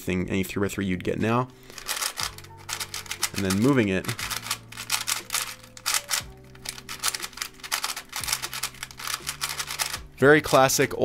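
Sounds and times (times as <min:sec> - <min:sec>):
background music: 0:00.0 - 0:11.0
plastic puzzle cube clicking: 0:01.8 - 0:10.1.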